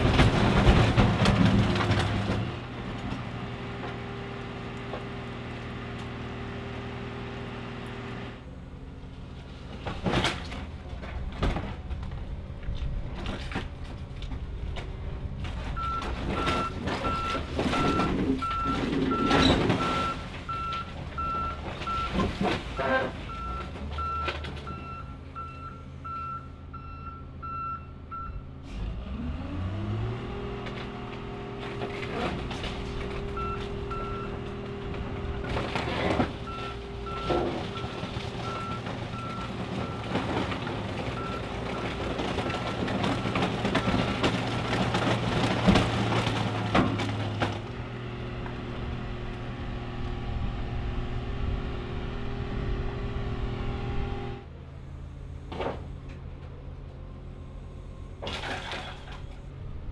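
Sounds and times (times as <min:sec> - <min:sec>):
reverse alarm beeps: 0:23.4 - 0:28.4
diesel engine revving: 0:28.5 - 0:58.2.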